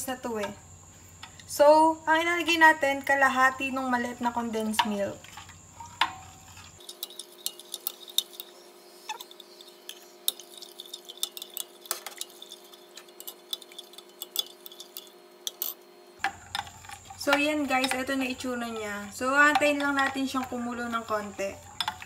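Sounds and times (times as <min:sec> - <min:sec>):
spoon clinking against glass: 0:06.8 - 0:08.5, 0:09.1 - 0:15.8.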